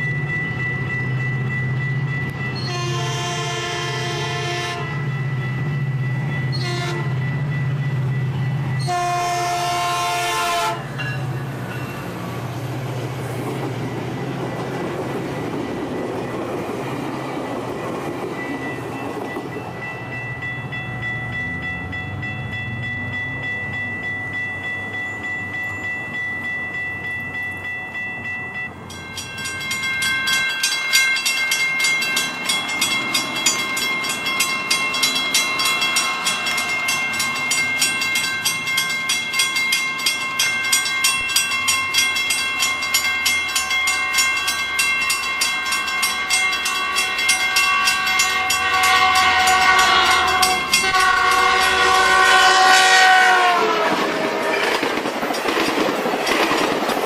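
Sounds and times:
fast high-pitched crossing bell: 0:00.0 - 0:02.7, 0:18.4 - 0:51.9
crossing warning bell ringing: 0:00.0 - 0:56.9
train wheels on rail: 0:00.0 - 0:57.0
train horn chord: 0:02.6 - 0:05.0, 0:06.6 - 0:07.2, 0:08.8 - 0:10.9, 0:46.6 - 0:54.8.

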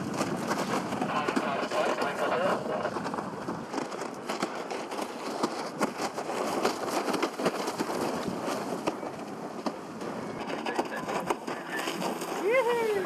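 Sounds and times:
wind and water rushing: 0:00.0 - 0:13.0
water slapping and splashing: 0:03.1 - 0:13.0.

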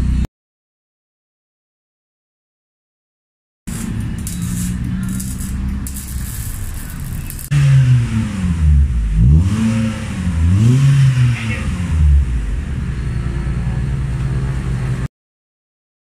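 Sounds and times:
car engine revving and idling: 0:03.7 - 0:15.1.

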